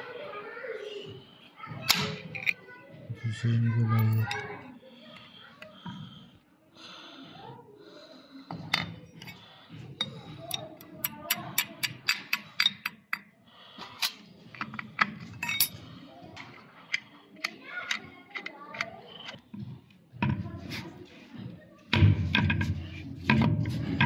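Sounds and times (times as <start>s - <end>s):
low background murmur: 0.0s - 24.0s
metal parts and tools clinking: 1.9s - 2.6s, 3.9s - 4.5s, 10.0s - 13.2s, 14.0s - 19.5s.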